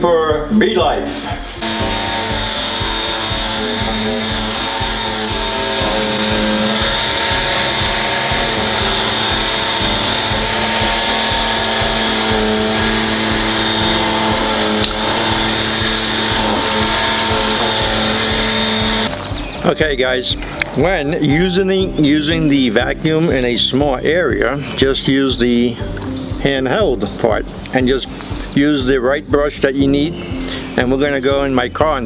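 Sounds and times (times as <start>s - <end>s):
vacuum cleaner motor whine: 1.6s - 19.6s
vacuum sucking up grounds: 1.6s - 19.7s.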